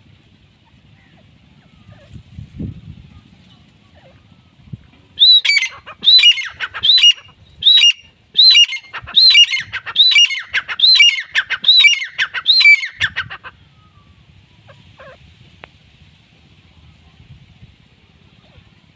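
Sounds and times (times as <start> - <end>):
francolin calling: 5.2 - 15.2.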